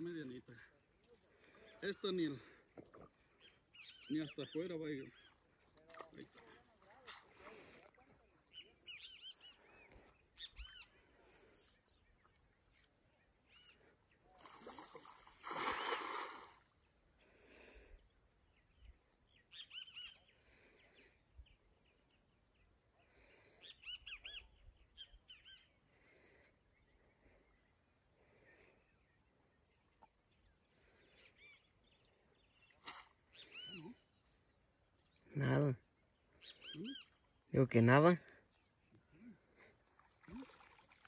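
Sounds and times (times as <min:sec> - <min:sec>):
birds chirping: 0:00.0 - 0:17.1, 0:18.0 - 0:39.8
net splashing into water: 0:14.4 - 0:16.7, 0:40.0 - 0:41.0.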